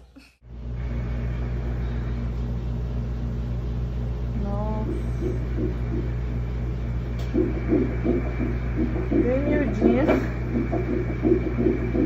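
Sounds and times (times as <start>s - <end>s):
low hum: 0.2s - 12.0s
doppler heartbeat pulsing whoosh: 4.9s - 6.6s, 7.2s - 12.0s.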